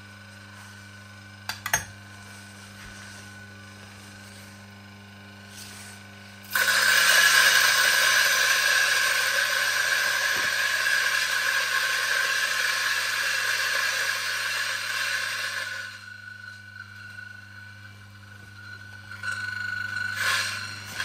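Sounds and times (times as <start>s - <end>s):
coffee grinder grinding beans: 0.0s - 21.0s
grinder motor hum: 0.0s - 21.0s.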